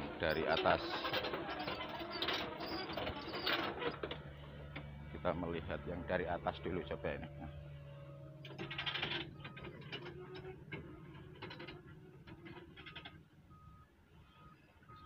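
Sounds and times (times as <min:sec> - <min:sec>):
reversing alarm beeps: 0:12.8 - 0:15.0.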